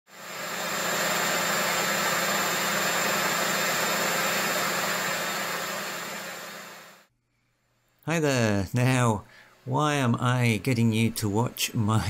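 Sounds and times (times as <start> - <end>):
washing machine spinning: 0.1 - 7.0.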